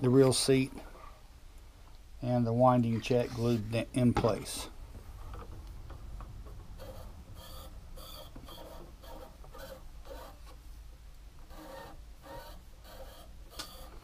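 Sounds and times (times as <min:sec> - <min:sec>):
low steady hum: 0:00.0 - 0:14.0
faint rubbing strokes: 0:02.8 - 0:03.9.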